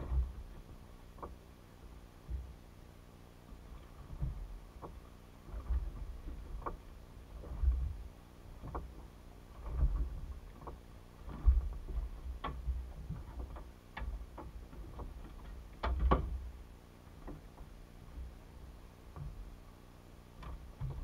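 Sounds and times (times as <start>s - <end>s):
low thumps: 0.0s - 1.4s, 3.9s - 16.6s.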